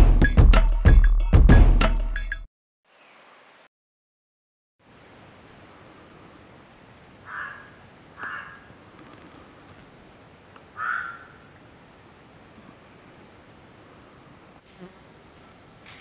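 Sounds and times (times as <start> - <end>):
background hiss: 4.8 - 16.0
short animal calls: 7.2 - 8.8, 10.8 - 11.5, 14.7 - 15.0.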